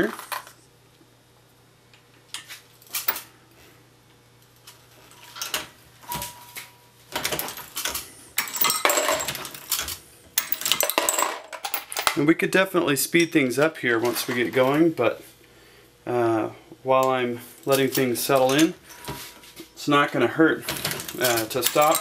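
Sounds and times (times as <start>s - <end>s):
metallic clinking and rattling: 7.2s - 12.2s, 20.7s - 22.0s.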